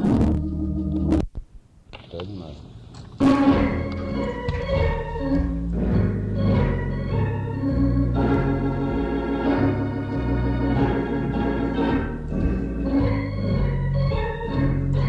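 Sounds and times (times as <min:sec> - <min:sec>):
jazz organ playing: 0:00.0 - 0:01.2, 0:03.2 - 0:15.0.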